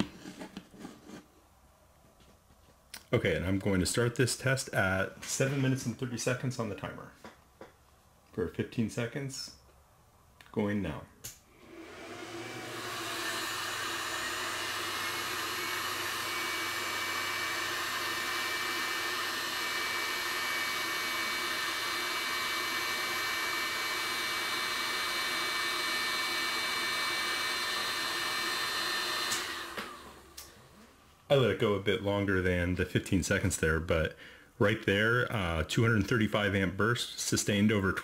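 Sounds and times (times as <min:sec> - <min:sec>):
cooling fans whirring and whining: 0:11.5 - 0:30.9.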